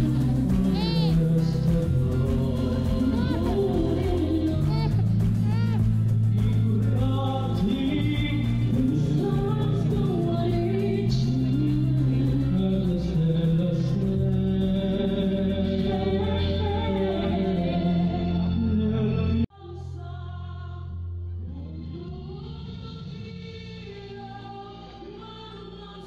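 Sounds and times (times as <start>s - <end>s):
loud music with singing: 0.0s - 19.9s.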